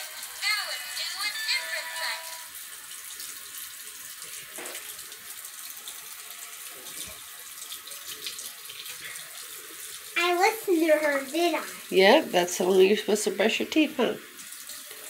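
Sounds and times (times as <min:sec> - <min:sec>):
faucet water running into sink: 0:01.2 - 0:15.0.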